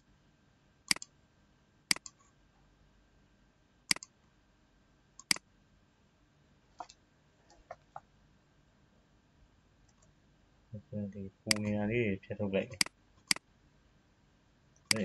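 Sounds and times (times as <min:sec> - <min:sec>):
computer mouse button clicking: 0:00.9 - 0:01.1, 0:01.9 - 0:02.2, 0:03.9 - 0:04.1, 0:05.2 - 0:05.4, 0:11.5 - 0:11.7.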